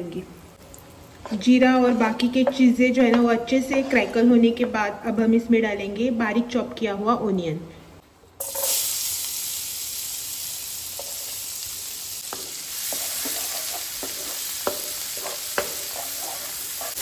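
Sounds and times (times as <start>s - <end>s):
spatula scraping and tapping pan: 1.2s - 4.8s, 12.3s - 17.0s
onion sizzling in oil: 8.4s - 17.0s.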